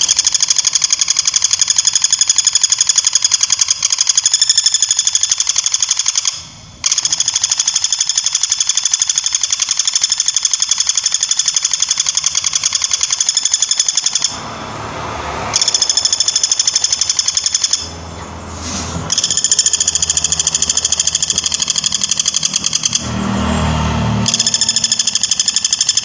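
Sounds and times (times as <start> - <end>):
woodpecker rattling call: 0.0 - 14.4, 19.1 - 23.0.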